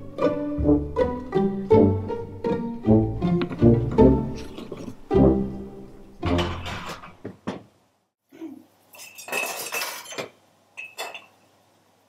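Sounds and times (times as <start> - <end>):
cello music: 0.0 - 6.7
utensils clinking against cookware: 6.2 - 7.2, 8.9 - 11.4.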